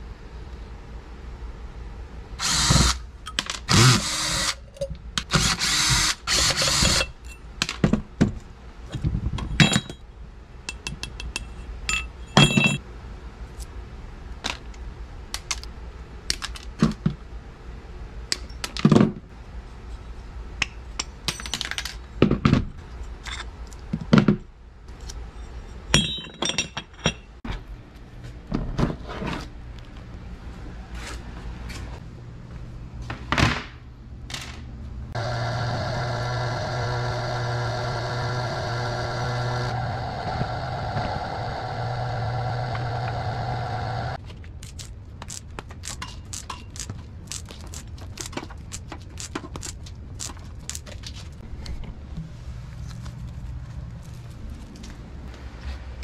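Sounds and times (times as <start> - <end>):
screws and tools clinking: 3.3 - 7.4
metal parts scraping and rattling: 23.0 - 23.9, 44.2 - 51.4.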